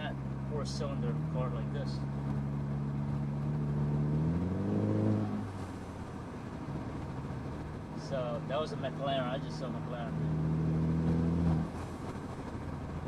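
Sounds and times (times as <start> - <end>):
turbocharged car engine revving: 0.0 - 6.0, 8.8 - 11.9.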